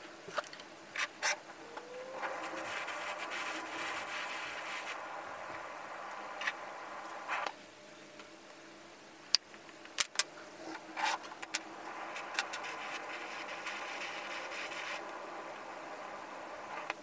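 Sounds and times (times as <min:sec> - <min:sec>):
steady rubbing: 0:01.3 - 0:05.5, 0:11.8 - 0:15.2.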